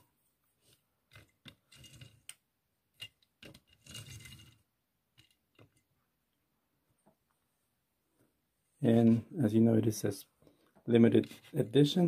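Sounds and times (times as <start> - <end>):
toy car wheels rolling on table: 1.1 - 2.4, 3.0 - 5.9.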